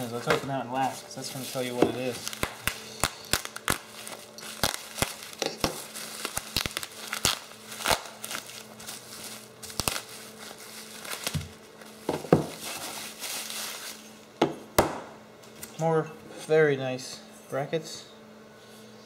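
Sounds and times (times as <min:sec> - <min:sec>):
bubble wrap crackling: 0:00.0 - 0:14.2.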